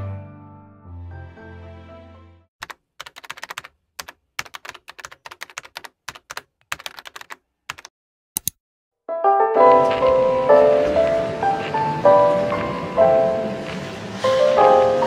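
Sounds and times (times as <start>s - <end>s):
keyboard typing: 2.6s - 8.6s.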